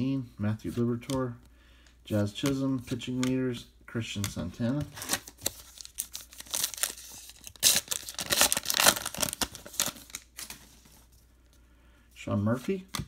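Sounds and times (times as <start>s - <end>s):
wrapper tearing and crinkling: 5.0s - 10.8s.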